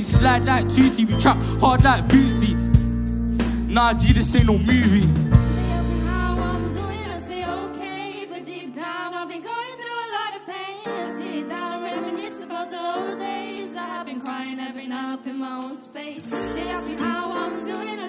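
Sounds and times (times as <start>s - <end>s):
backing singer singing: 0.0s - 2.6s, 3.7s - 18.0s
deep bass: 0.0s - 7.6s
live band playing chords: 0.0s - 7.8s, 16.2s - 18.0s.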